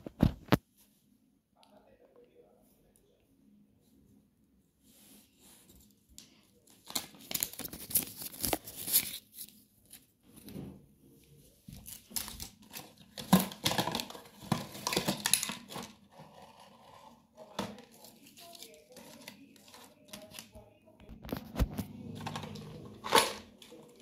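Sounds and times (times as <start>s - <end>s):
paper packaging crinkling: 6.6s - 10.1s, 11.7s - 24.0s.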